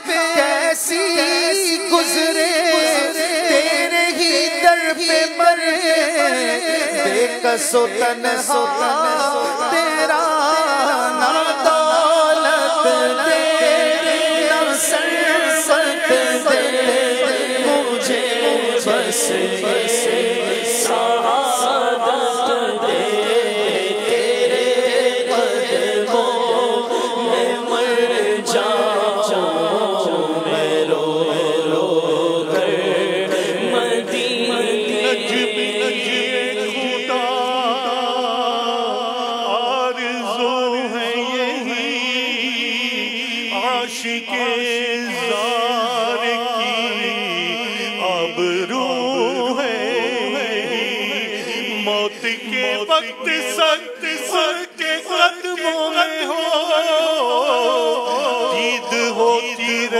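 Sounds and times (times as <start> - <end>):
man singing devotional verse: 0.0 - 59.9
humming backing voices: 11.2 - 40.5.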